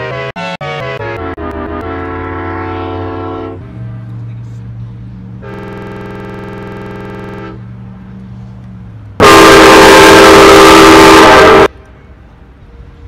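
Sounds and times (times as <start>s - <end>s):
loud distorted horn blast: 0.0s - 3.6s, 5.4s - 7.6s, 9.2s - 11.7s
locomotive air horn: 0.0s - 4.0s, 5.4s - 7.7s, 9.2s - 11.8s.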